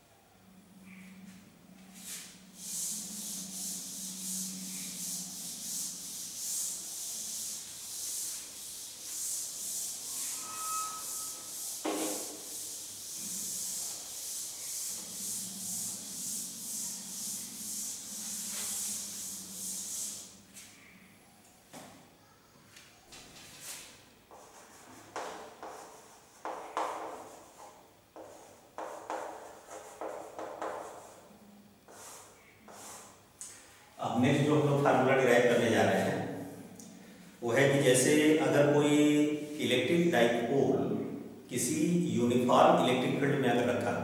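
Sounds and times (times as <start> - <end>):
duster wiping blackboard: 1.8 - 20.8, 23.5 - 33.2.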